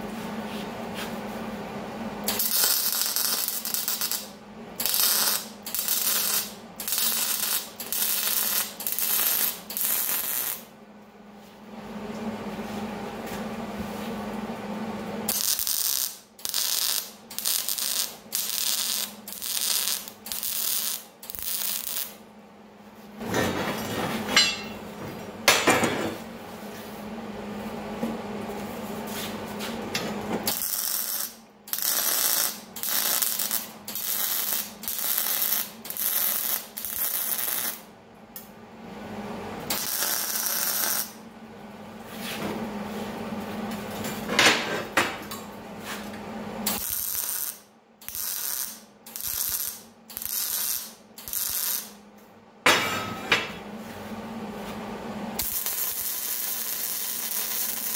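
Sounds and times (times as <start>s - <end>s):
welding arc bursts: 2.2s - 10.7s, 15.3s - 22.2s, 30.5s - 37.9s, 39.7s - 41.2s, 46.7s - 52.0s, 55.4s - 57.9s.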